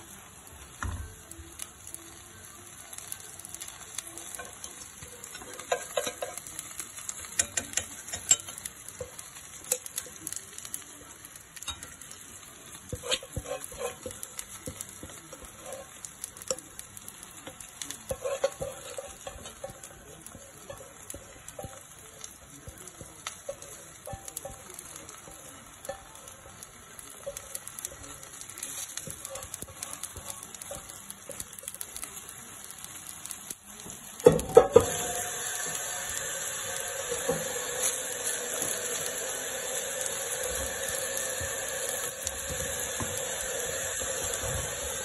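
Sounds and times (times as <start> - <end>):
batter sizzling in a pan: 0.0 - 45.0
spatula scraping a pan: 12.7 - 16.5, 17.5 - 21.8.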